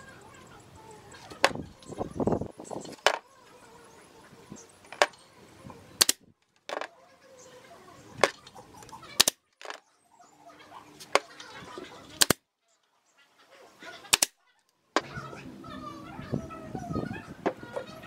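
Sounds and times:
wooden slats clicking and knocking: 1.4 - 1.6, 2.9 - 3.2, 4.9 - 5.2, 6.0 - 6.9, 9.2 - 9.8, 12.2 - 12.4, 14.1 - 14.3.

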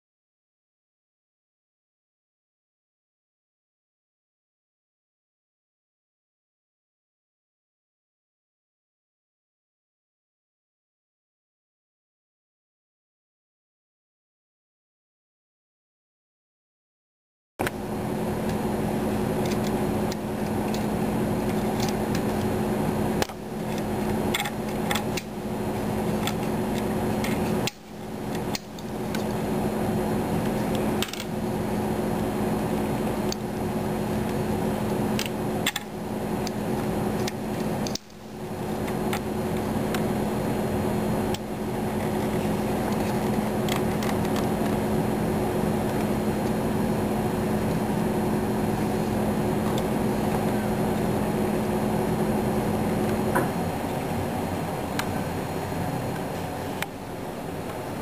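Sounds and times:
low machine hum: 17.6 - 58.0.

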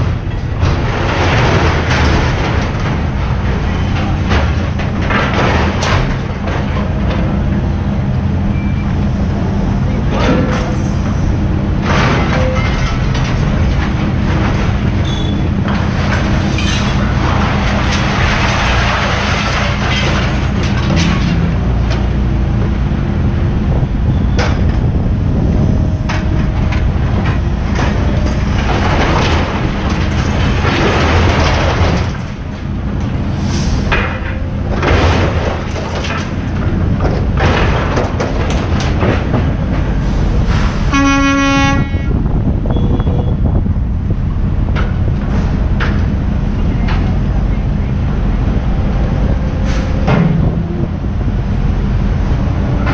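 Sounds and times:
heavy machinery engine running: 0.0 - 52.9.

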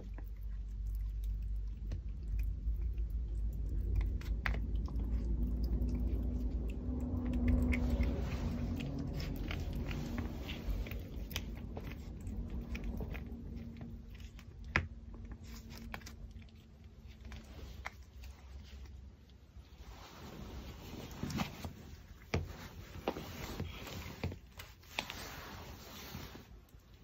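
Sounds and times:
dog chewing bone: 0.0 - 18.8.

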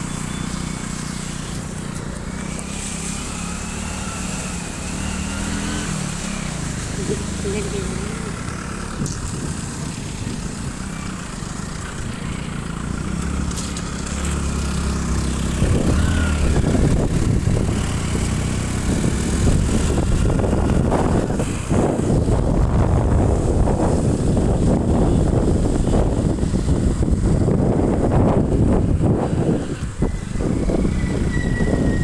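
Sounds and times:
vehicle engine running: 0.0 - 32.0
wind buffeting on microphone: 8.4 - 11.0, 13.0 - 32.0.

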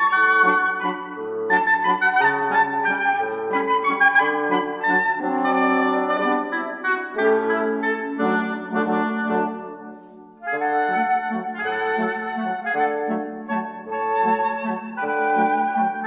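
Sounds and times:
instrumental music with wind tones: 0.0 - 16.0.

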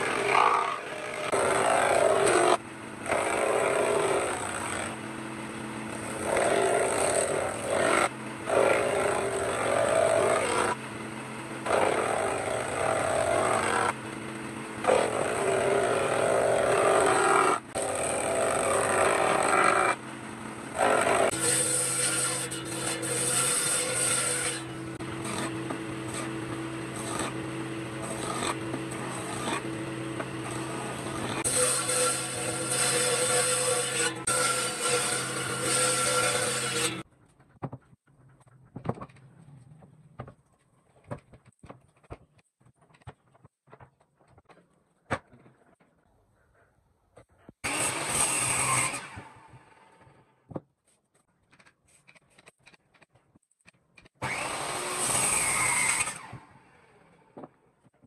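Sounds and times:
power tool working wood: 0.0 - 37.0, 47.6 - 50.1, 54.2 - 57.1.

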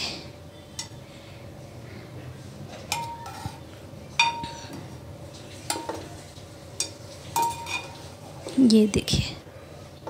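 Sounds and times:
spoon clinking against steel pot: 2.9 - 3.6, 4.2 - 4.7, 6.8 - 8.0.

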